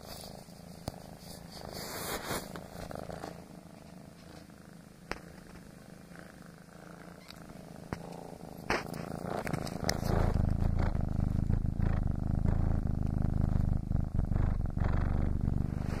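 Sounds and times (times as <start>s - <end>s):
scratchy rustles: 0.0s - 3.5s, 7.9s - 12.1s, 15.5s - 16.0s
kitten purring: 0.0s - 16.0s.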